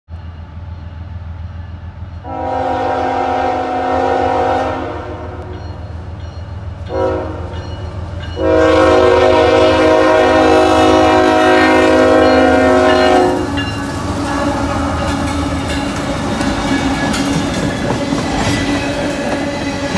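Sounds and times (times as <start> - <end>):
locomotive engines rumbling: 0.1 - 19.9
train horn blasts: 2.2 - 5.8, 6.8 - 7.8, 8.4 - 15.0.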